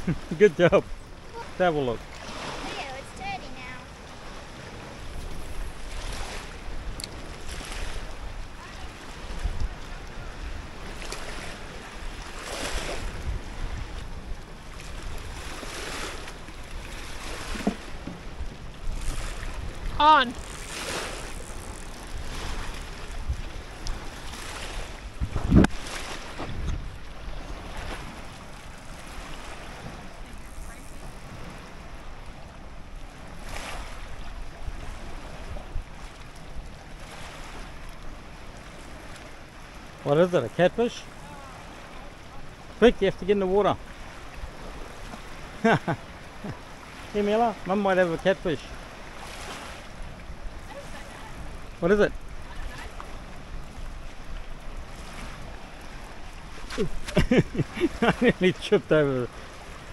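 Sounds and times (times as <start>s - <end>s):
wind buffeting microphone: 0.0s - 38.2s
water lapping at shore: 0.0s - 59.9s.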